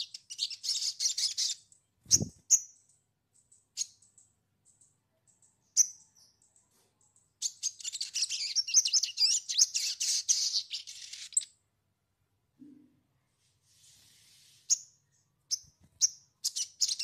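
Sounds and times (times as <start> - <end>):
bird chirps and chattering: 0.0 - 11.5, 15.5 - 17.0.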